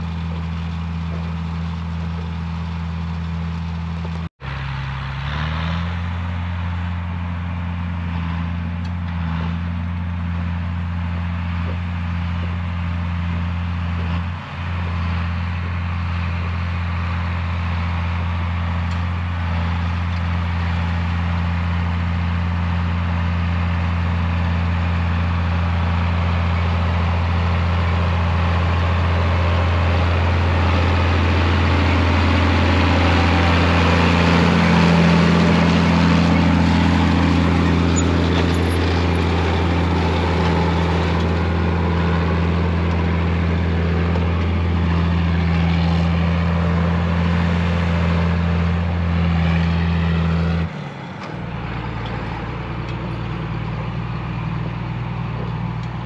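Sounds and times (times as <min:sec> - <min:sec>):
quieter engine: 0:00.0 - 0:56.0
tractor diesel engine running: 0:00.0 - 0:56.0.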